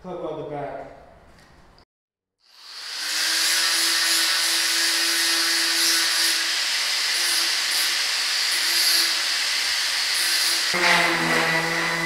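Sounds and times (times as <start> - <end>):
angle grinder on steel: 2.5 - 12.0.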